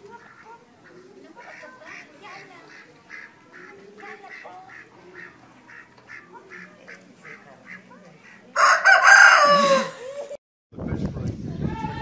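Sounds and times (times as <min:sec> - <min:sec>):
rooster crowing: 0:08.6 - 0:10.3.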